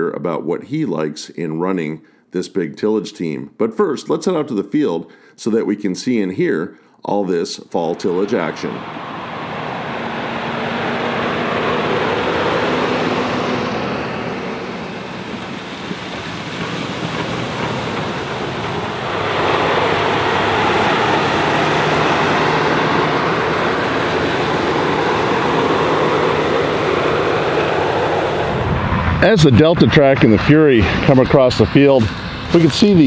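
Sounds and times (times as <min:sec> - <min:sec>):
tractor and disc rushing noise: 0:07.9 - 0:33.0.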